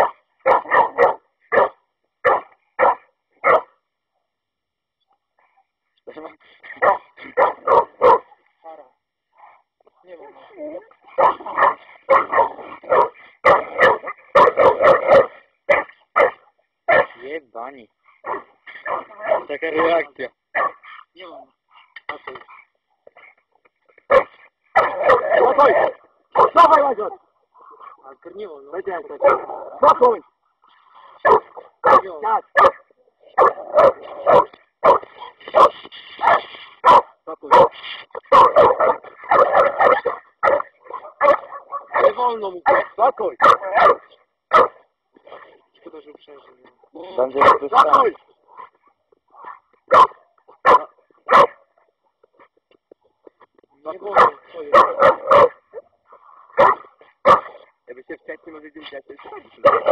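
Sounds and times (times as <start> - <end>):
dog barking loudly: 0.0 - 3.8, 6.7 - 8.4, 11.1 - 17.2, 18.2 - 21.0, 24.1 - 28.0, 28.9 - 30.2, 31.2 - 45.5, 47.3 - 51.8, 54.0 - 55.9, 56.5 - 57.7, 59.2 - 59.9.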